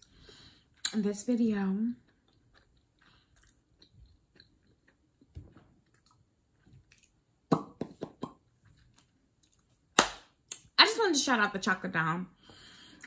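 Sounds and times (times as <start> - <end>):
soft lip smacks and tongue clicks: 2.1 - 9.8.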